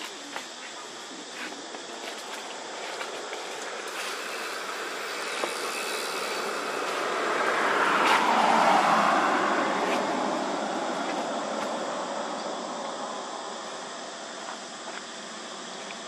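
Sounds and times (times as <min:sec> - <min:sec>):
vehicle passing by: 0:04.1 - 0:13.5.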